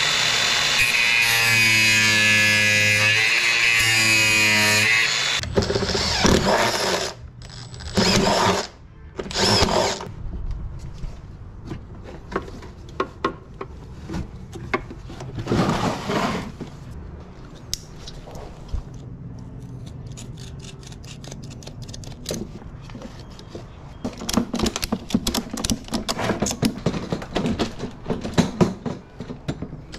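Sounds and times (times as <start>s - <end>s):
angle grinder grinding metal: 0.0s - 8.7s.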